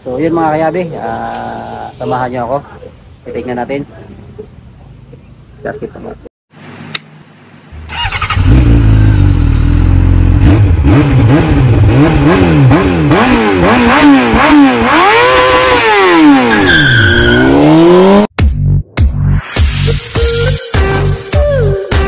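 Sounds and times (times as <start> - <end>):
engine revving hard: 7.9 - 18.3
high squeal: 16.5 - 17.6.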